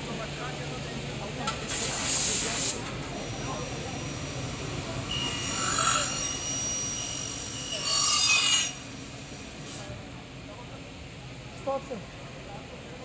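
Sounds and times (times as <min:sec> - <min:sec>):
saw blade screeching through metal: 0:05.1 - 0:08.8.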